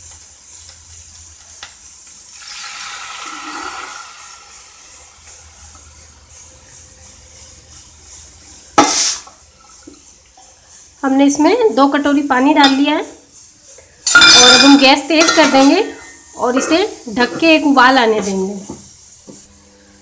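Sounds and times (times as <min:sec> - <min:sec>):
water sizzling in hot oil: 0:00.0 - 0:19.6.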